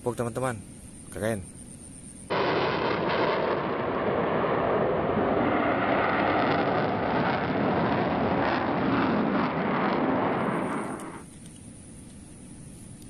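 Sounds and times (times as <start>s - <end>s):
jet engine rushing: 2.3s - 11.3s.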